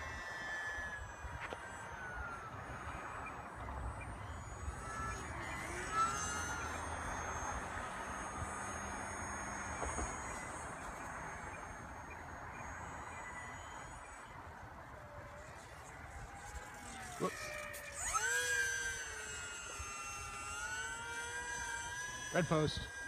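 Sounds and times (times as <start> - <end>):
model plane motor whine: 0.0 - 23.0
wind: 0.0 - 23.0.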